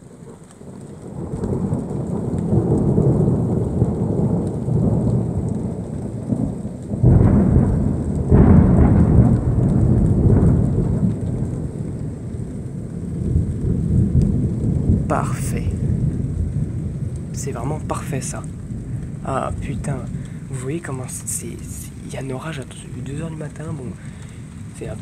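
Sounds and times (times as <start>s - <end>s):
rain falling: 0.0s - 25.0s
thunder rumbling: 0.0s - 25.0s
sharp thunder peals: 1.2s - 25.0s.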